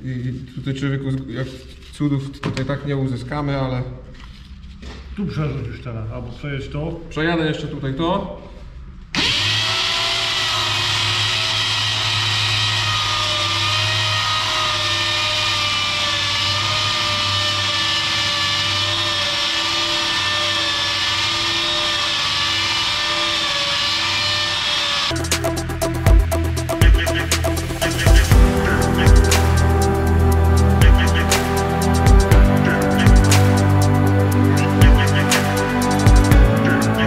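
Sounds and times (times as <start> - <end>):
power tool polishing metal: 9.2 - 32.0.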